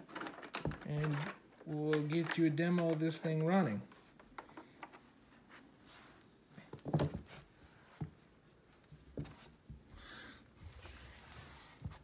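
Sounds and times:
vacuum cord clicks and knocks: 0.0 - 3.6.

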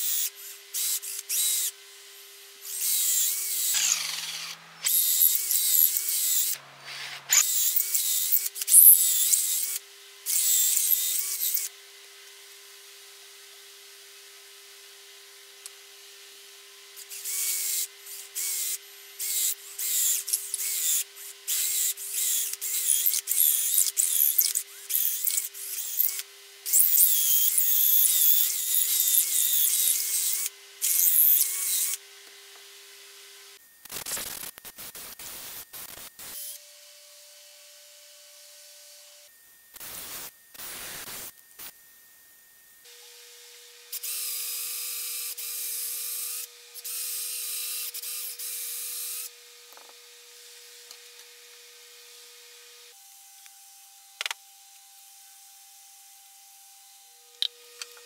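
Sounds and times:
cordless drill boring into wood: 0.0 - 11.7, 17.0 - 32.0.

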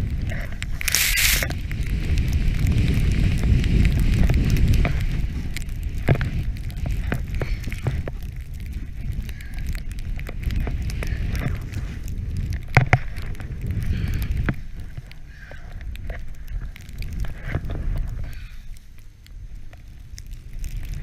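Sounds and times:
snowboard swishing through snow: 0.0 - 9.2
scattered clicks: 0.0 - 21.0
wind rumble on microphone: 0.0 - 21.0.

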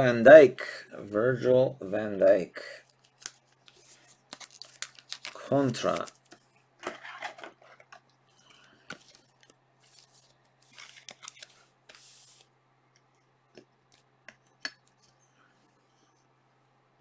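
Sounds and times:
plastic card sleeve rustling and clicking: 2.9 - 12.4.

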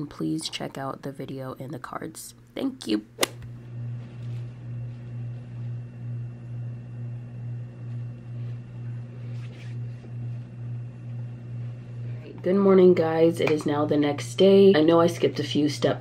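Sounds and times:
sharp click: 3.2 - 3.5
low pulsing hum: 3.4 - 16.0.

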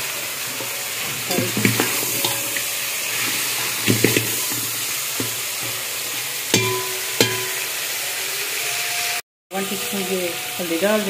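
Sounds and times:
meat sizzling in a pot: 0.0 - 11.0
metal ladle knocking a pot: 1.3 - 2.8, 3.8 - 7.8
pot clanking and ringing: 1.3 - 2.8, 3.8 - 5.9, 6.5 - 7.8.

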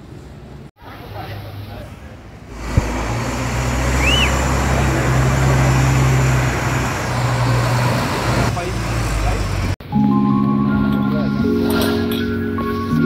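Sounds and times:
diesel engine humming: 2.4 - 9.8
thin whistle: 4.0 - 4.4.

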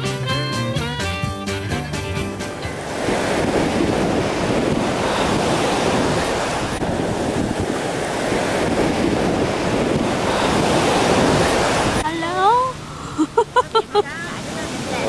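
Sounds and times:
surf washing onto beach: 1.5 - 15.0
wind buffeting microphone: 2.4 - 12.8.

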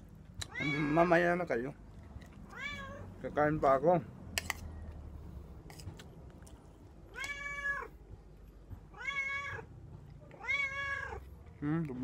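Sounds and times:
cat meowing: 0.4 - 1.2, 2.5 - 3.2, 7.1 - 8.0, 8.9 - 9.7, 10.3 - 11.3.

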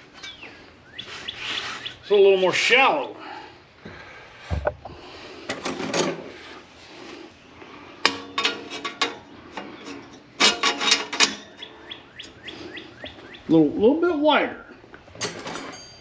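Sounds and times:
metal scraping on metal: 8.0 - 11.7.

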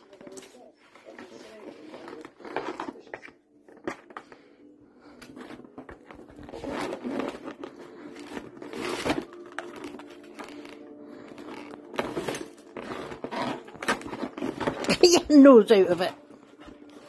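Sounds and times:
cardboard box rustling and crinkling: 0.0 - 4.2, 5.3 - 17.0.

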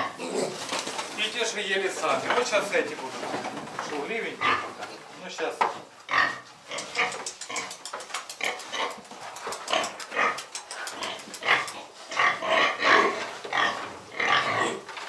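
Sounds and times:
piglets grunting and squealing: 0.0 - 0.7, 6.1 - 14.9.

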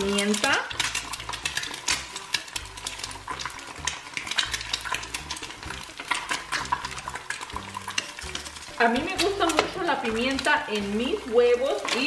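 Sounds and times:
eggs sizzling in oil: 0.0 - 12.0.

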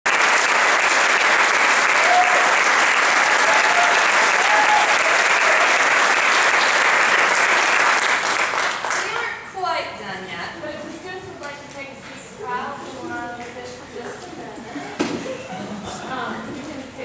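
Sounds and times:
audience applauding: 0.0 - 9.4
faint voices in crowd: 9.6 - 17.0.

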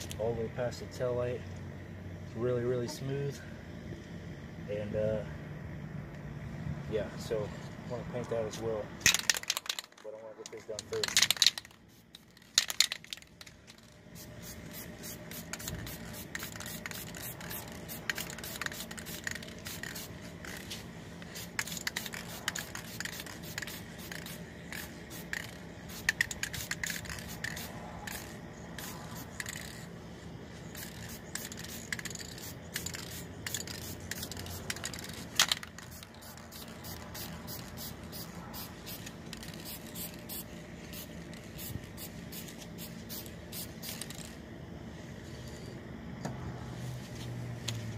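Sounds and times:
faint steady hum: 0.0 - 47.9
spray paint can bursts: 9.0 - 10.0, 10.6 - 29.9, 30.6 - 44.4.

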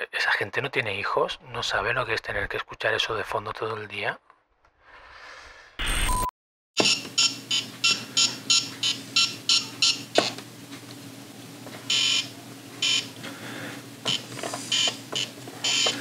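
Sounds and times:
short electronic beeps: 5.8 - 10.0
longer electronic beeps: 11.9 - 13.1, 14.1 - 16.0.

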